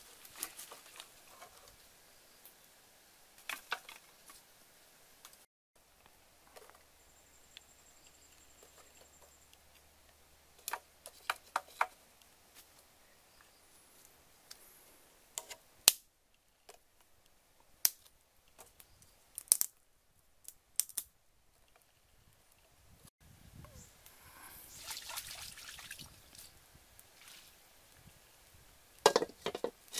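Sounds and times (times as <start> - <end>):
dry sticks snapping: 15.8 - 16.1, 19.4 - 19.8, 20.4 - 21.1
firewood knocking: 29.0 - 29.8.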